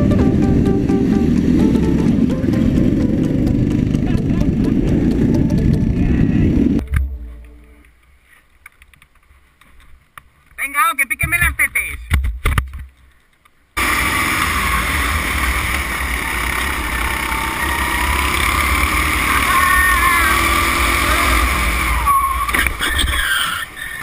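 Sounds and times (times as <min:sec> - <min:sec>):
go-kart engine running hard: 0:00.0 - 0:06.8, 0:13.8 - 0:24.0.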